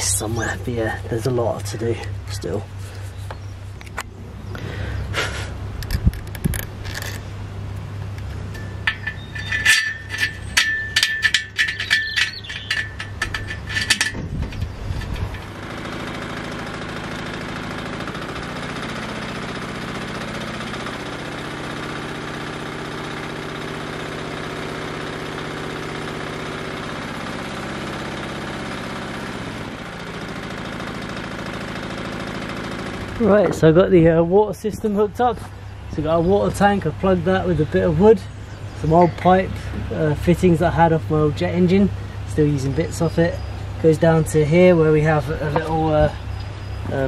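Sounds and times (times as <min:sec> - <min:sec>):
small engine running steadily: 0:00.0 - 0:47.0
rapid sharp clicking and rattling: 0:08.1 - 0:33.5.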